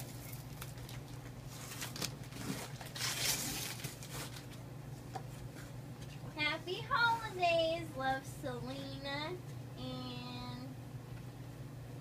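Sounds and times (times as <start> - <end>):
cardboard box being torn open: 1.6 - 4.4.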